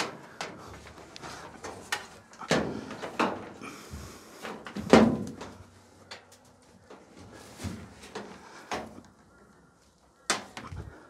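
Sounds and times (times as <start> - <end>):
dryer cabinet knocking and clunking: 4.7 - 5.6.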